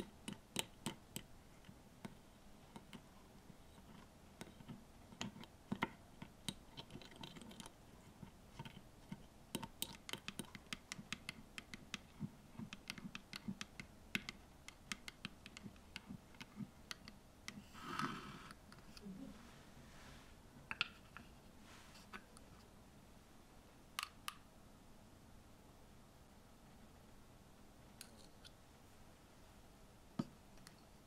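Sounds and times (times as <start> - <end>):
rustling scrape: 19.3 - 20.4, 21.2 - 22.7.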